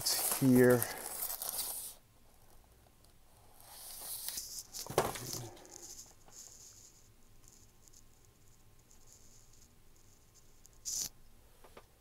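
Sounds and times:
tissue paper rustling and crinkling: 0:00.0 - 0:02.0.

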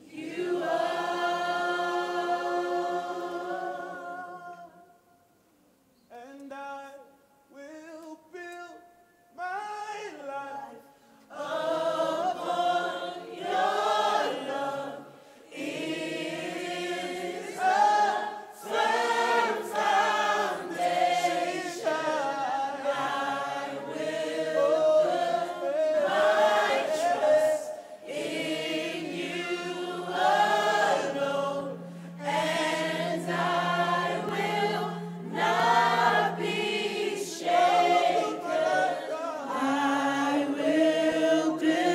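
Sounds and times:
group singing worship songs: 0:00.0 - 0:05.0, 0:10.1 - 0:41.9
steady low held note: 0:28.7 - 0:39.2.

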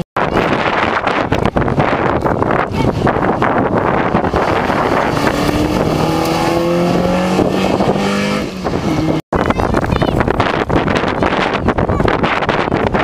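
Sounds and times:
wind buffeting microphone: 0:00.0 - 0:13.0
rally car engine accelerating: 0:04.2 - 0:09.2.

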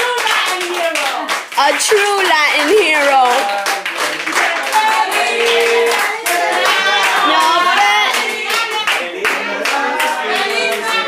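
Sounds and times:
group clapping: 0:00.0 - 0:11.0
people cheering and whooping: 0:04.4 - 0:11.0.

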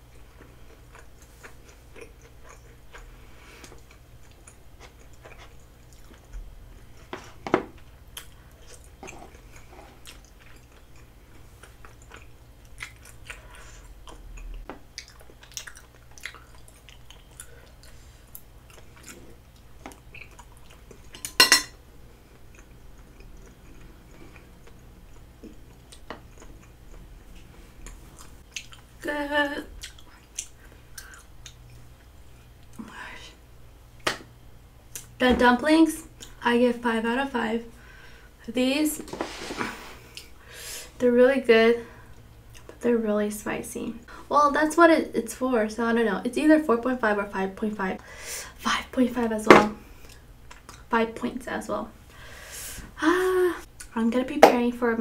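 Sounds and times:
chewing and wet mouth sounds: 0:00.1 - 0:07.2, 0:07.8 - 0:21.2, 0:22.1 - 0:29.0, 0:29.6 - 0:32.8, 0:42.1 - 0:42.8, 0:50.0 - 0:50.9.

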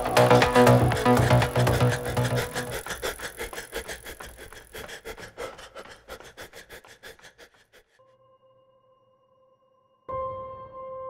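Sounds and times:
rapid rhythmic pulsing: 0:00.0 - 0:07.4.

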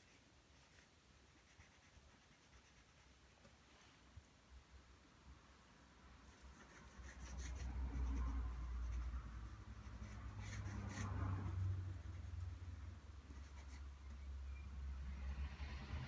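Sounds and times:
pencil scratching on paper: 0:00.0 - 0:03.2, 0:06.3 - 0:14.2.

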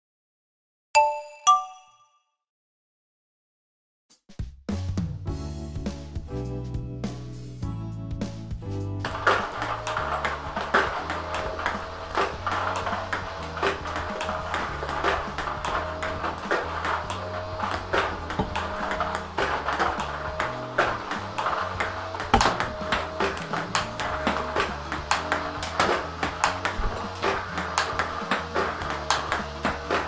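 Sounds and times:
background music with bass line: 0:04.7 - 0:30.0
table tennis ball clicking: 0:09.1 - 0:30.0.

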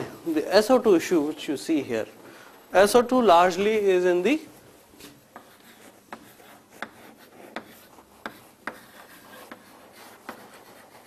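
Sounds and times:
faint steady hiss: 0:00.0 - 0:11.0
pen tapping and scratching: 0:05.0 - 0:11.0.

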